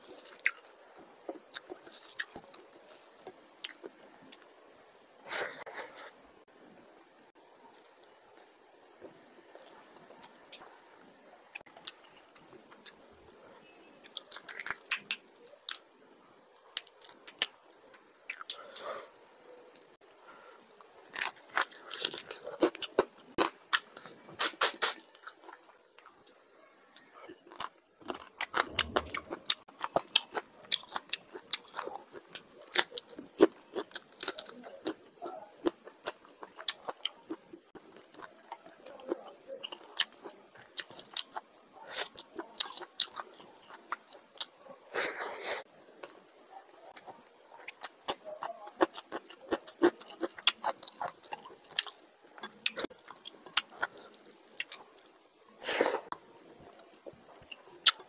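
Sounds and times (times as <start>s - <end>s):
chewing and biting: 0.0s - 4.5s, 20.9s - 26.4s, 27.0s - 45.2s, 46.8s - 58.0s.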